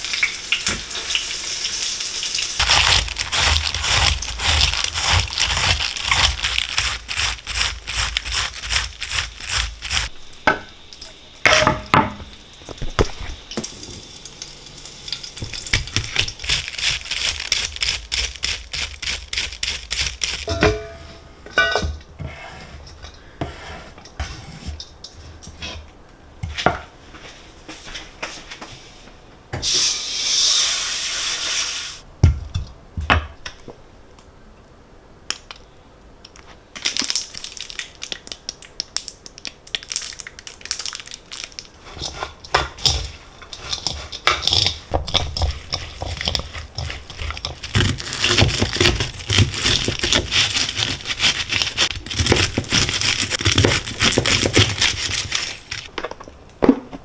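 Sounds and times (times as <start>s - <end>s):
utensils and dishes clinking: 20.4s - 22.0s
hiss: 29.6s - 32.0s.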